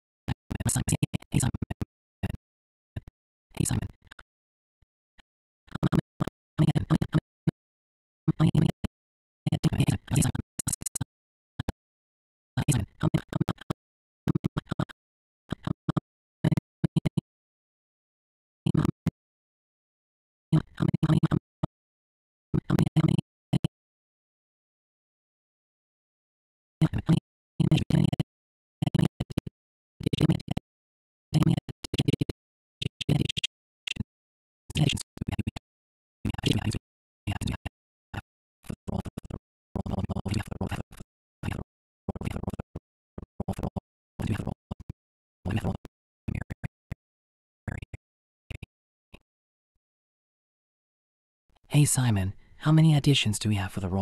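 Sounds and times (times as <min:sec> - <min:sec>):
choppy fragments of speech: 0:00.5 - 0:01.5, 0:03.6 - 0:04.0, 0:09.5 - 0:11.0, 0:12.6 - 0:13.3, 0:34.7 - 0:35.0, 0:51.7 - 0:54.0
choppy snippets of character dialogue: 0:51.7 - 0:54.0.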